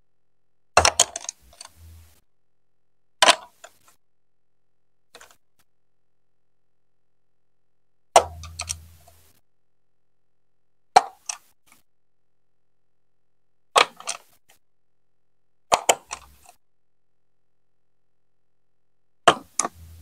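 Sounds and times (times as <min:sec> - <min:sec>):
small plastic clicks: 0:11.0 - 0:11.8, 0:13.8 - 0:14.4, 0:15.7 - 0:16.6.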